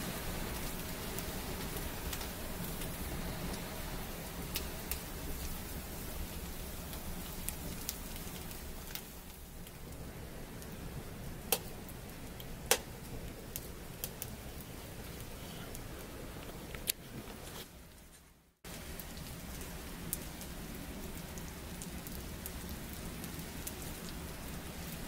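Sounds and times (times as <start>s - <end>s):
wood fire hissing and crackling: 0.0s - 25.0s
sharp pops of fire: 11.5s - 14.4s.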